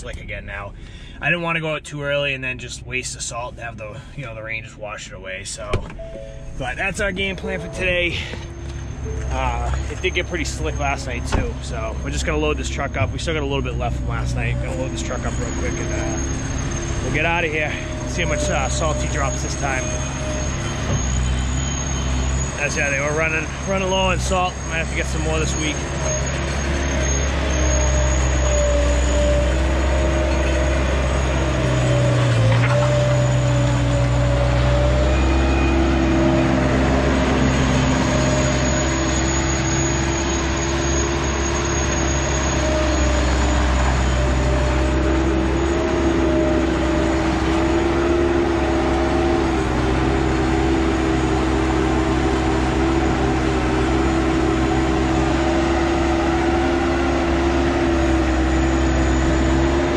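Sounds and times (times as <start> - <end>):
road noise: 0.0 - 59.9
truck engine drone: 0.0 - 59.9
held tones shifting in pitch: 6.0 - 21.6.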